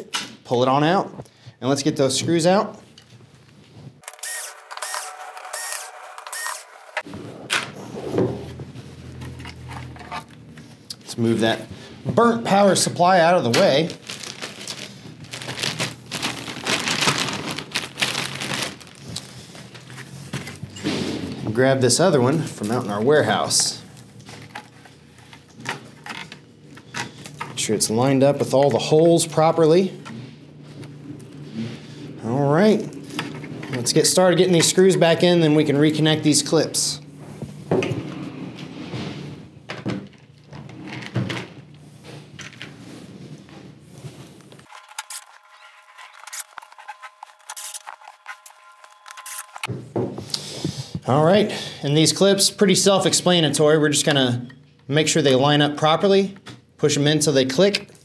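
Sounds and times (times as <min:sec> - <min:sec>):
low steady hum: 0:07.2 - 0:44.7
rustling and crackling of parts: 0:13.1 - 0:27.6, 0:39.7 - 0:49.7.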